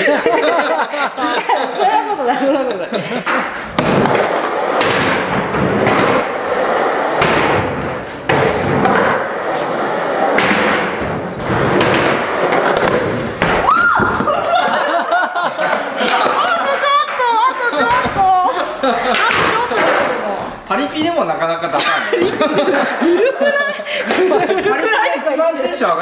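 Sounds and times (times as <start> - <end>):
skateboard thudding down: 3.2 - 14.6, 19.0 - 20.2
skateboard wheels rolling on concrete: 3.2 - 20.2.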